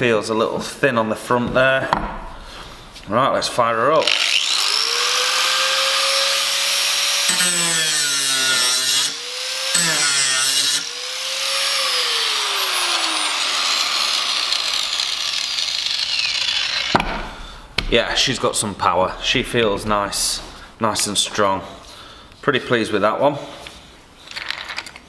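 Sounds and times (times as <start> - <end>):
angle grinder running free: 4.0 - 17.0.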